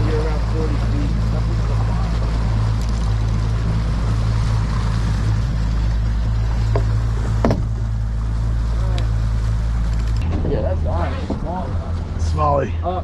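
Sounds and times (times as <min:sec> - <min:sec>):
outboard motor humming: 0:00.0 - 0:13.0
water washing past hull: 0:00.0 - 0:13.0.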